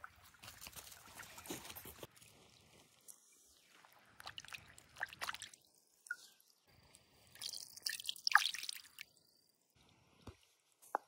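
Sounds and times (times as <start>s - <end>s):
water dripping: 3.8s - 9.2s.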